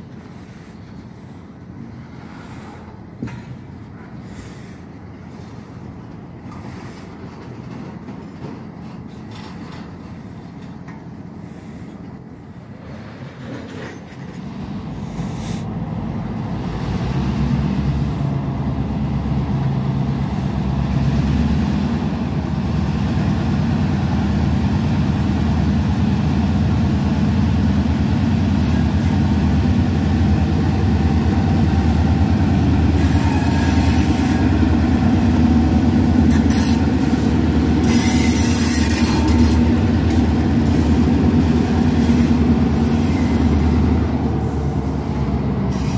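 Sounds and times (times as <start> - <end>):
diesel locomotive engine drone: 0.0 - 45.9
freight train rolling: 0.0 - 45.9
wheels clicking on rail joints: 6.1 - 14.5.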